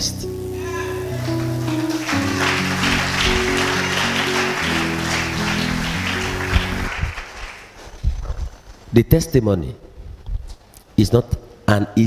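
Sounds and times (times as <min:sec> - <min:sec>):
instrumental music with sustained chords: 0:00.0 - 0:07.2
congregation applauding: 0:00.6 - 0:08.2.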